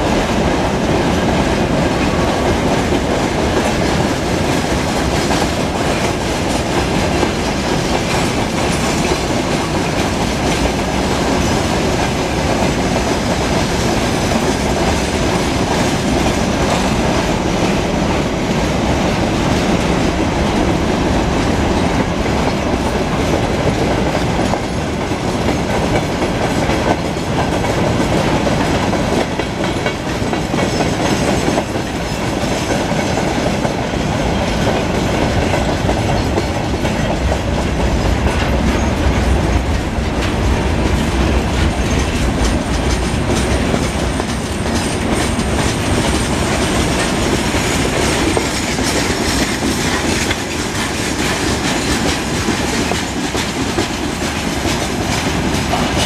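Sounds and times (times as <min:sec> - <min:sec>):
train wheels rumbling on rail: 0:00.0 - 0:56.0
wheels clattering over rail joints: 0:21.3 - 0:56.0.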